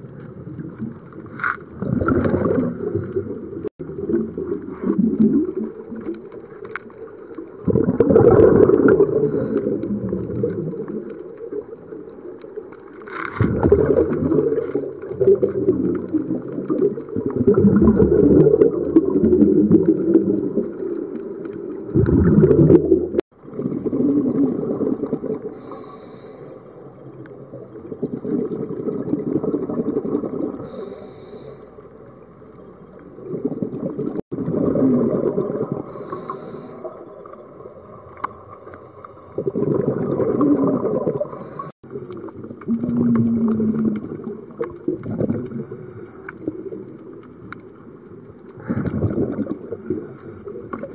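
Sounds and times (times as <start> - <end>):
underwater water sloshing: 0.0 - 50.9
short hissy bursts: 25.6 - 26.8, 30.7 - 31.8, 35.9 - 36.9.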